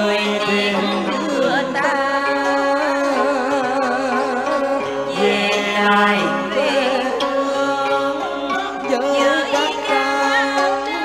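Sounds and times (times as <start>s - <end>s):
karaoke backing music: 0.0s - 11.0s.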